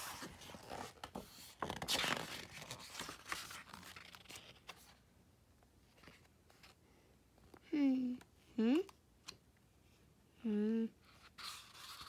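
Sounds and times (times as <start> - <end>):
book pages turning: 0.0 - 5.0, 11.2 - 12.0.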